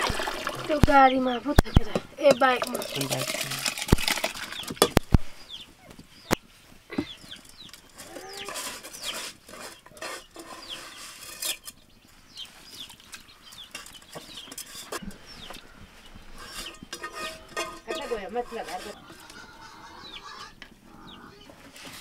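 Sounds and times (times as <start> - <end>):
chickens clucking: 0.0 - 3.2, 4.2 - 22.0
metal pots and plates clinking: 2.2 - 5.0, 16.4 - 19.0
chicks cheeping: 4.5 - 16.9, 17.9 - 21.6.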